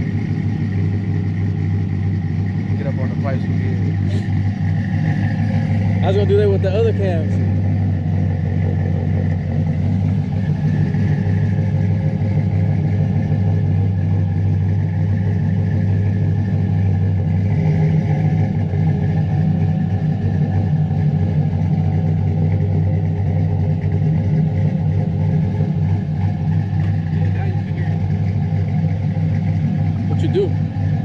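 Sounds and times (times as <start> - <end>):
truck engine idling with lope: 0.0 - 31.0.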